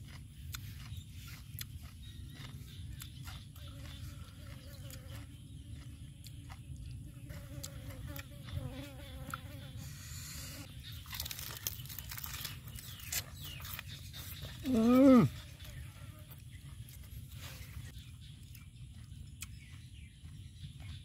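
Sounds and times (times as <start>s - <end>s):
fly buzzing: 7.3s - 10.7s
lettuce leaf rustling: 10.9s - 14.8s.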